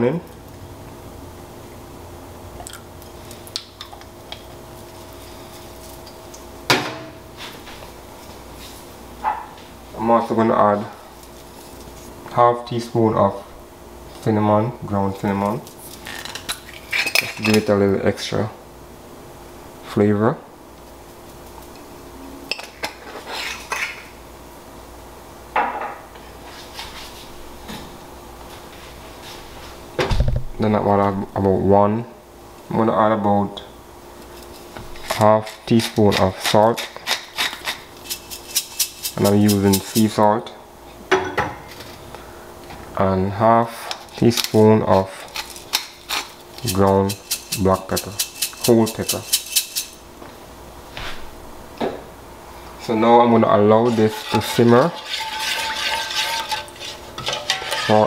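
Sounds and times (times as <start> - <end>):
steady low hum: 0.0 - 58.0
spice jar rattling: 37.4 - 40.0, 45.4 - 50.0.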